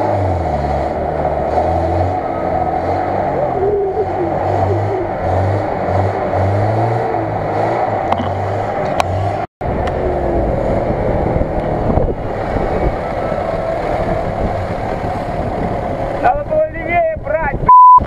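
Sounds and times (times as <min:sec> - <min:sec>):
off-road engines revving: 0:00.0 - 0:17.6.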